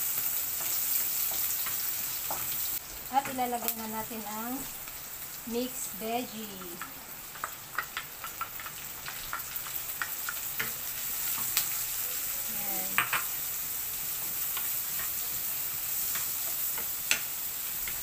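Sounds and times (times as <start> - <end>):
vegetables sizzling in oil: 0.0 - 18.0
wooden spatula tapping a pan: 16.1 - 18.0.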